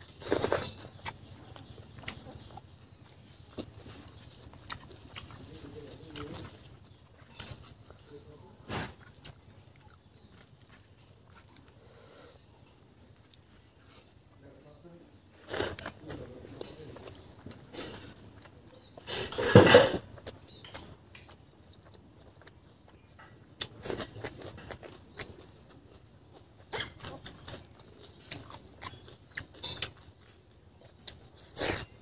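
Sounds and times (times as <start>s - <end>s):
chewing and lip smacks: 0.2s - 8.2s, 9.0s - 11.8s, 20.2s - 32.0s.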